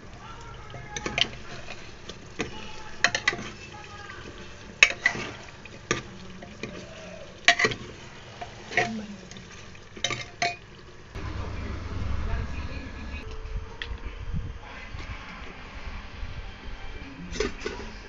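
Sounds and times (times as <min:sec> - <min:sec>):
curry sizzling: 0:00.0 - 0:13.2
metal ladle scraping pot: 0:00.7 - 0:10.7.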